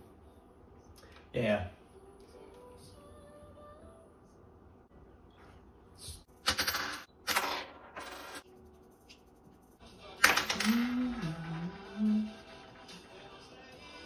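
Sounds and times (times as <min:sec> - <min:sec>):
coin spinning and ringing on table: 0:06.4 - 0:08.4, 0:10.2 - 0:11.8.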